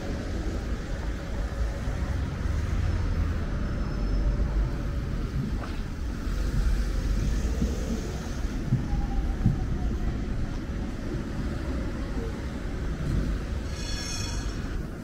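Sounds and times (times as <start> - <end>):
low traffic rumble: 0.0 - 15.0
brief shrill tone: 13.6 - 14.8.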